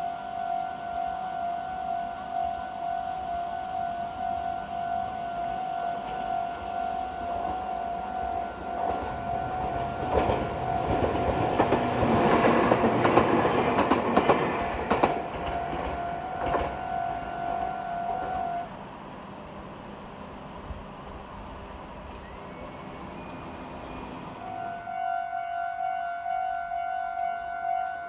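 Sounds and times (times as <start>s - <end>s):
level-crossing alarm ringing: 0.1s - 13.9s, 14.9s - 18.7s
train wheels clacking over rail joints: 8.8s - 17.0s.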